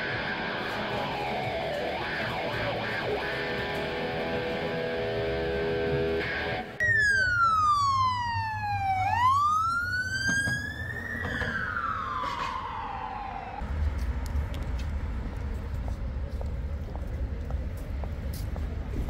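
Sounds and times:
low rumble of road traffic: 0.0 - 19.0
emergency siren wailing: 6.8 - 13.6.

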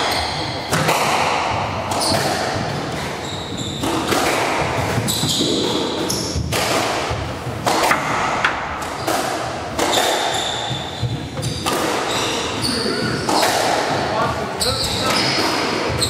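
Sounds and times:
squash ball cracking off walls: 0.7 - 3.2, 3.8 - 10.9, 11.5 - 12.1
shoes squeaking on wooden floor: 1.9 - 6.5, 7.2 - 16.0.

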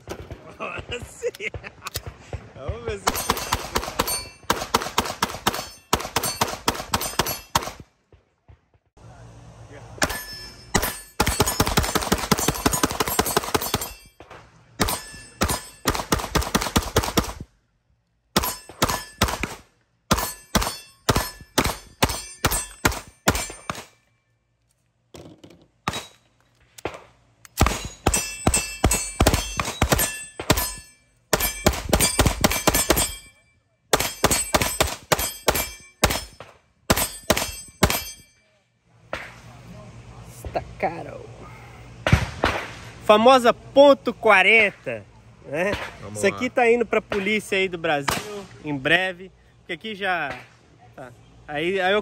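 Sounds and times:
pistols firing rapidly: 0.0 - 8.7, 10.8 - 14.0, 14.8 - 17.5, 18.4 - 23.9, 27.6 - 33.2, 33.9 - 38.0.

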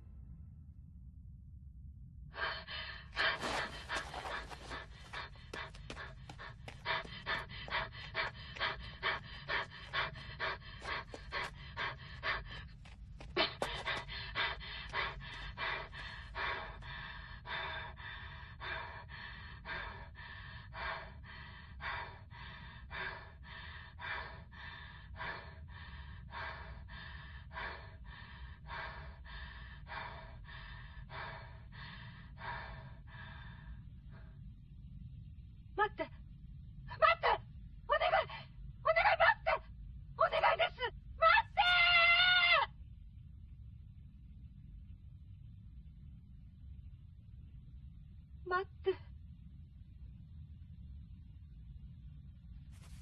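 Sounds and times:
steady low rumble: 0.0 - 53.0
heavy rhythmic panting: 2.7 - 33.5.

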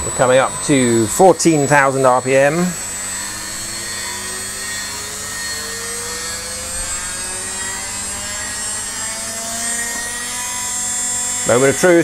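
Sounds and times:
router spindle whining: 0.0 - 12.0.

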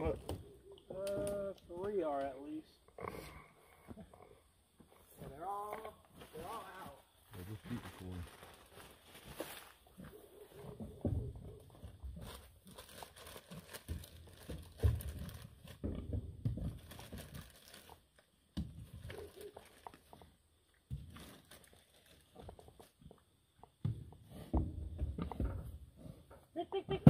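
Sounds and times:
plastic bag crinkling: 7.5 - 9.8, 12.2 - 15.8, 16.7 - 18.3, 18.9 - 20.2, 21.0 - 22.4.

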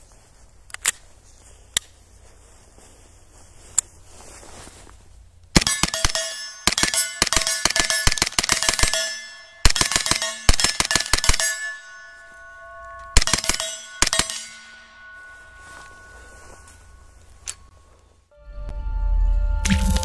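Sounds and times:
steel plate ringing: 5.6 - 18.0.

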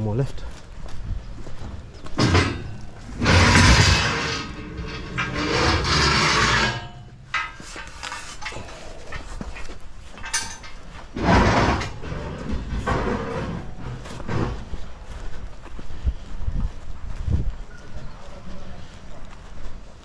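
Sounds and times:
metal scaffold scraping: 1.6 - 15.0
metal clatter: 2.0 - 14.8
metal knocks: 2.1 - 9.3.

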